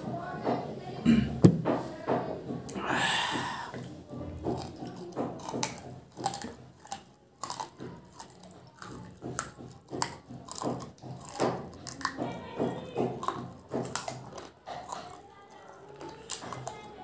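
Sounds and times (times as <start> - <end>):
chewing chicken off the bone: 3.4 - 17.0
bone crunching: 4.4 - 12.3, 13.0 - 17.0.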